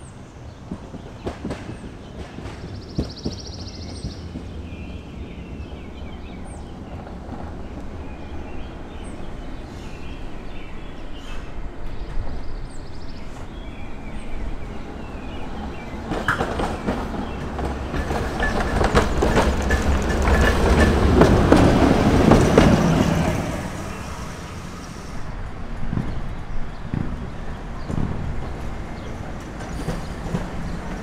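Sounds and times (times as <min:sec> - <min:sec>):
trolley wheels clicking over rails: 0:15.6 - 0:23.6, 0:25.7 - 0:31.0.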